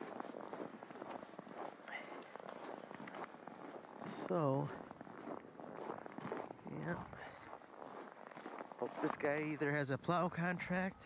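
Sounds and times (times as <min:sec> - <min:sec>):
footsteps crunching in snow: 0:00.0 - 0:11.0.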